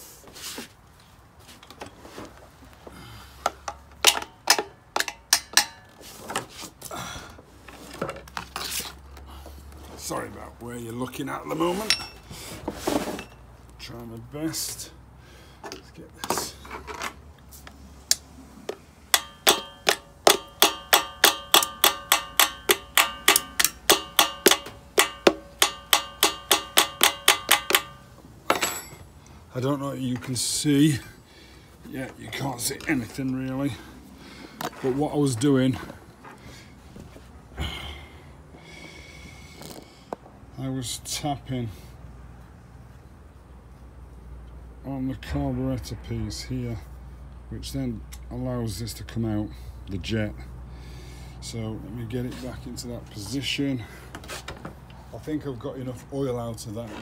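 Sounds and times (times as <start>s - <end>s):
tapping on metal engine part: 3.6s - 5.8s, 18.7s - 29.0s.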